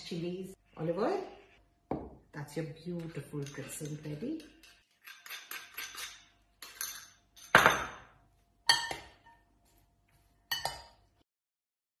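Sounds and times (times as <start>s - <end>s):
metal servers clinking on glass bowl: 3.3s - 8.0s, 10.5s - 11.0s.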